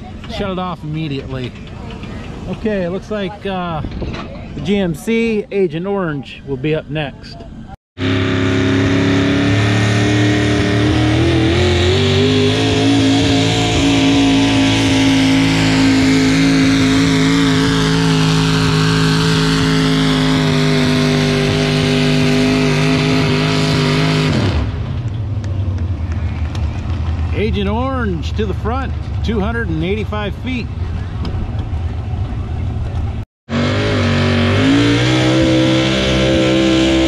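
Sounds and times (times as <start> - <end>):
truck engine running hard: 7.5 - 37.0.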